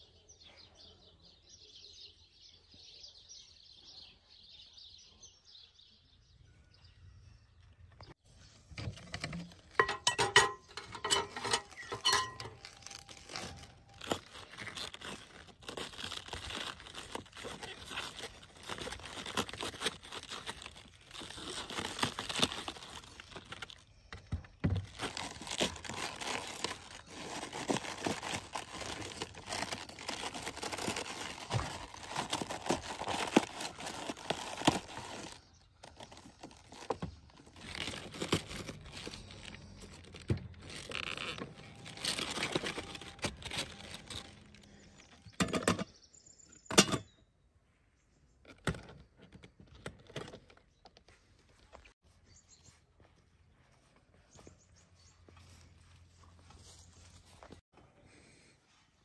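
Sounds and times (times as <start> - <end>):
knife cutting crunchy cabbage: 10.6 - 23.8, 24.6 - 44.4.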